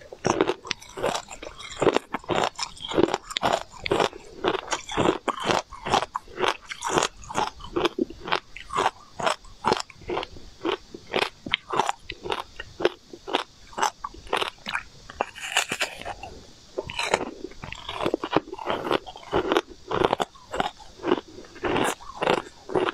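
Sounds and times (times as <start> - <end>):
frozen ice being chewed: 0.0 - 22.9.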